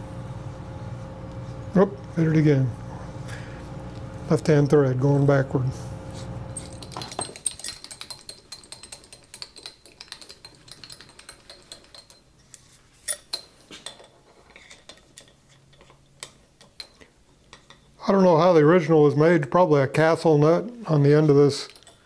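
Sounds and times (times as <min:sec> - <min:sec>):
wrench clinking on metal nut: 0:06.6 - 0:12.3, 0:21.6 - 0:22.0.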